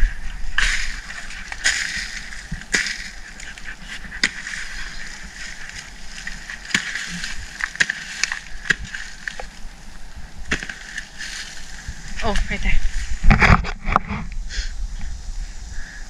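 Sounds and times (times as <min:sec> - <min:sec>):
hoe chopping into soil: 0:00.6 - 0:03.5, 0:04.2 - 0:09.5, 0:10.4 - 0:11.5.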